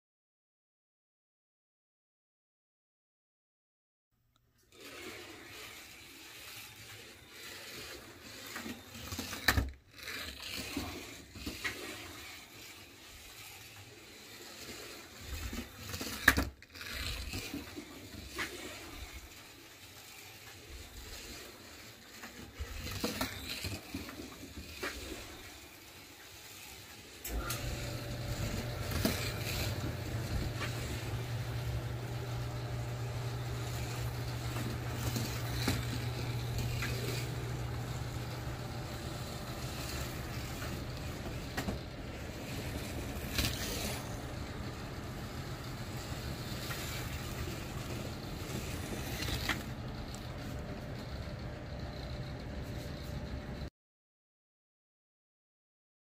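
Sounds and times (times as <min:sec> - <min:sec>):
small electric motor humming: 0:16.9 - 0:52.8.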